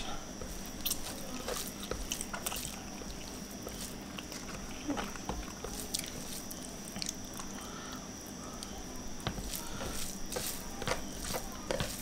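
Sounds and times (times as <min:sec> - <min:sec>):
chewing: 0:00.0 - 0:08.0.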